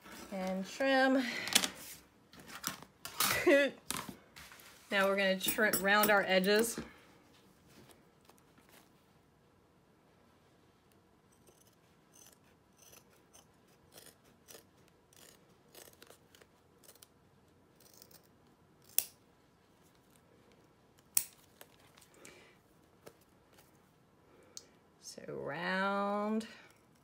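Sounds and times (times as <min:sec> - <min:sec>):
scissors snipping fabric: 0:11.4 - 0:17.1.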